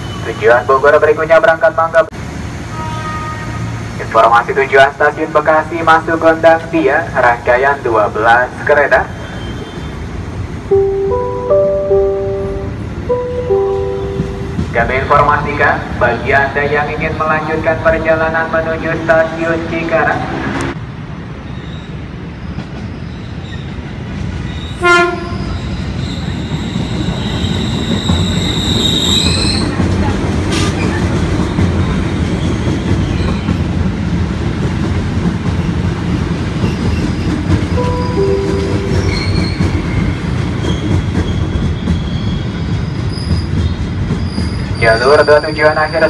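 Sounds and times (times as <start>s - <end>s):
train cars rumbling past: 0.0s - 46.0s
train horn blast: 2.7s - 3.7s, 24.8s - 25.6s
train wheel squeal: 9.1s - 10.2s, 21.4s - 33.7s, 36.6s - 37.5s, 38.8s - 46.0s.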